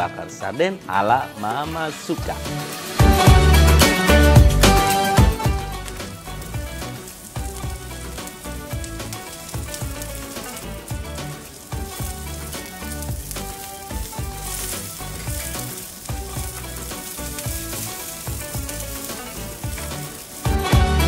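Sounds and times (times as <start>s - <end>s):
background music: 0.0s - 21.0s
shallots sizzling in oil: 1.0s - 21.0s
spatula stirring: 11.5s - 20.6s.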